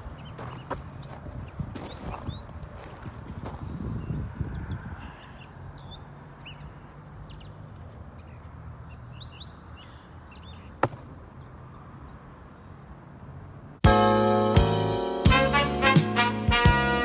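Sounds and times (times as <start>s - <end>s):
bird chirps: 0.0s - 2.8s, 3.9s - 13.7s.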